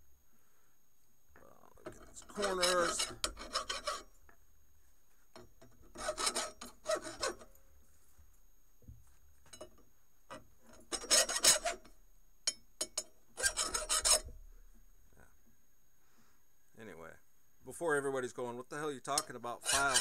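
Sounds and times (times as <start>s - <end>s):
hand file rasping on metal: 1.9s - 4.1s, 5.9s - 7.5s, 10.9s - 11.8s, 13.4s - 14.3s, 19.2s - 20.0s.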